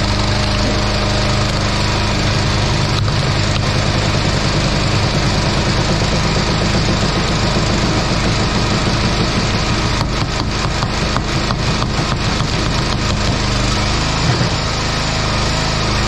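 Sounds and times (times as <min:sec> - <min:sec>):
log splitter engine running: 0:00.0 - 0:16.0.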